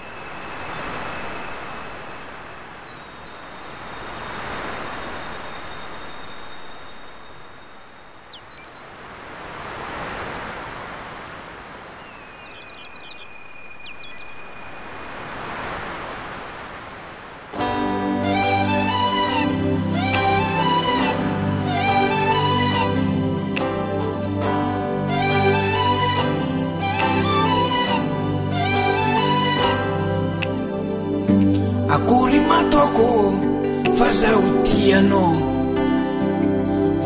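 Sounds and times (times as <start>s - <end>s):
bird chirps and whistles: 0.4s - 6.6s, 8.3s - 9.9s, 12.0s - 14.8s
surf washing onto beach: 14.4s - 17.8s.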